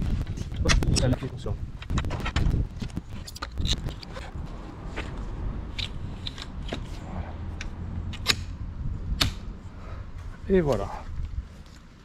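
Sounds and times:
frame parts clicking and knocking: 0.3 - 4.3.

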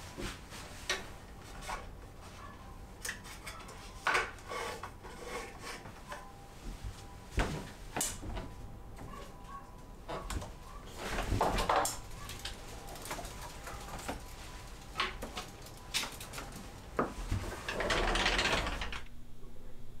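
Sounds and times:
clothes rustling: 5.8 - 17.8
plastic hangers clacking on wood: 11.2 - 19.0.

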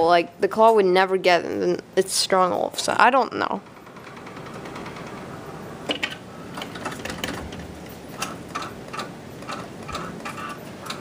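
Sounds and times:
claw machine mechanical hum: 0.0 - 11.0
regular mechanical ticking: 3.2 - 11.0.

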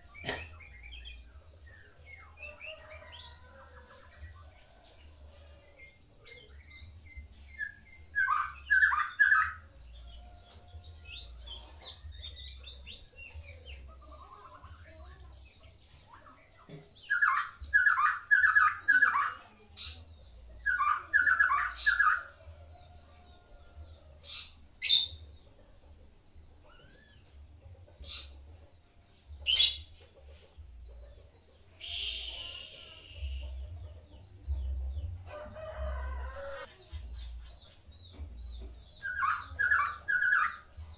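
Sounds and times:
songbird singing rapid notes: 31.7 - 35.8
high whistled bird notes: 31.8 - 33.5.

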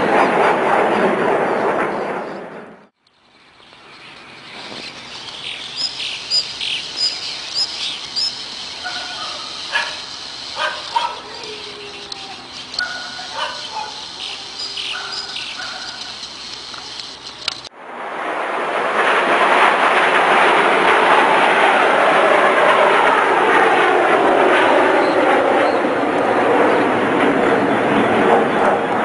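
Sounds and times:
birds chirping: 2.0 - 17.7
steady hiss: 3.3 - 17.7.

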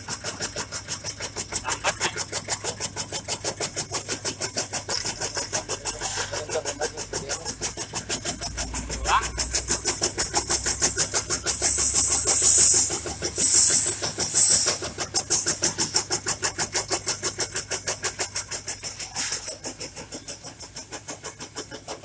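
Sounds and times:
shredding machine chopping: 0.0 - 20.1
hissing: 10.6 - 16.1.

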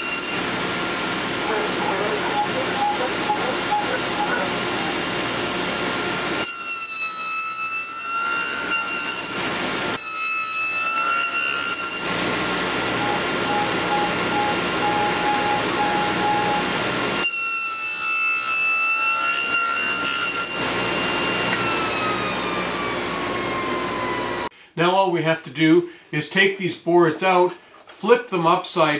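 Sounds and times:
table saw cutting wood: 0.0 - 24.5
saw spinning down: 1.3 - 13.8, 17.0 - 24.5.

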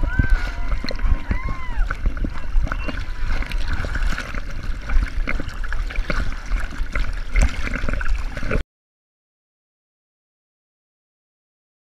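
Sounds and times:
dense irregular crackle: 0.0 - 8.6
low rumble: 0.0 - 8.6
river water sloshing and splashing: 0.0 - 8.6.

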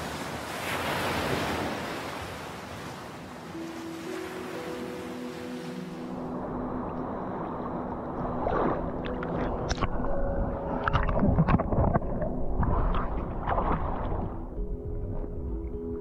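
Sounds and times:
water sloshing and splashing: 6.8 - 15.4.

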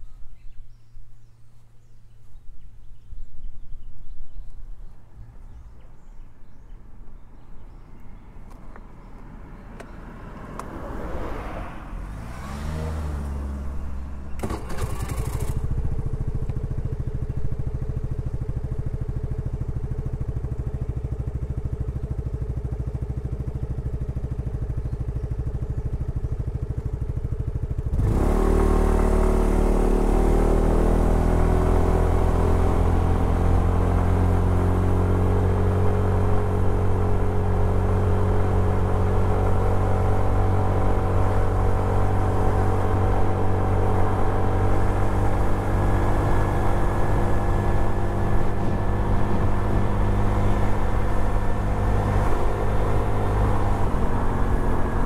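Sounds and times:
scooter pulling away: 10.9 - 55.0
scooter engine idling: 13.8 - 28.2.

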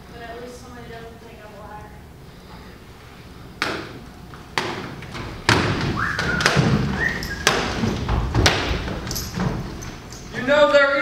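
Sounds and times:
feet stamping on wooden floor: 4.3 - 10.1.

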